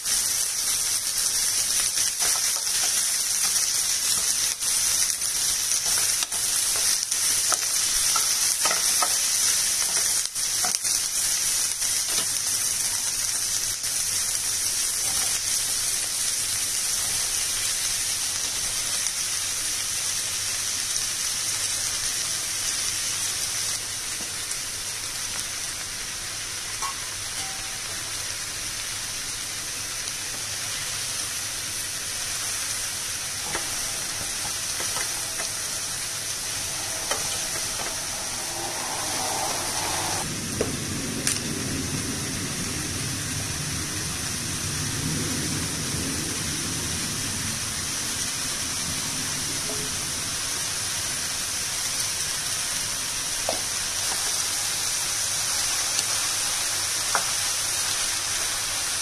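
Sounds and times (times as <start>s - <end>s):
vegetables sizzling in oil: 0.0s - 42.8s, 45.9s - 59.0s
wooden spatula scraping pan: 33.2s - 40.2s.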